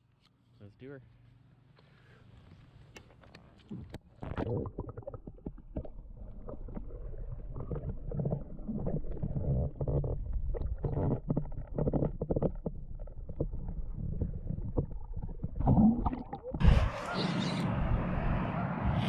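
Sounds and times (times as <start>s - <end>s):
underwater water sloshing: 4.1s - 17.0s.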